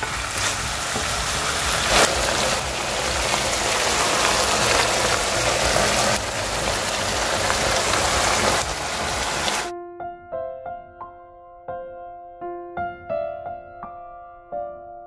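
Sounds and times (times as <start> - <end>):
food sizzling in a pan: 0.0 - 9.7.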